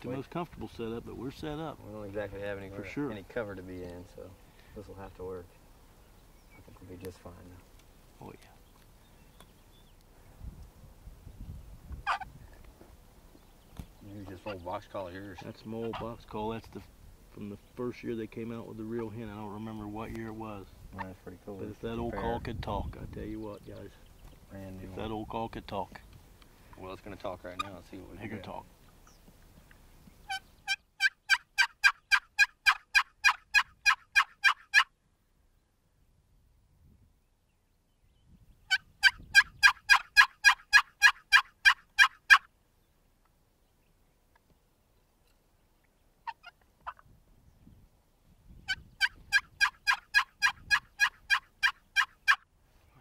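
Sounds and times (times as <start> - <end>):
box call yelping like a turkey: 12.0 - 12.3, 22.1 - 22.4, 30.2 - 35.0, 38.7 - 42.5, 46.2 - 47.1, 48.6 - 52.5.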